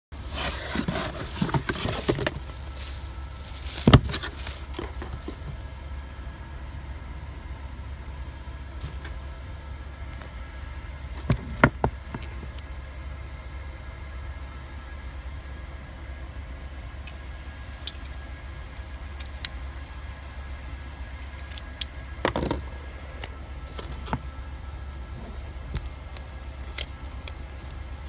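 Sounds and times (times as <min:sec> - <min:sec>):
low hum: 0:00.1 - 0:28.0
cardboard and packing rustling: 0:00.2 - 0:05.6, 0:08.8 - 0:09.3, 0:11.1 - 0:12.6, 0:23.6 - 0:24.4, 0:25.0 - 0:28.0.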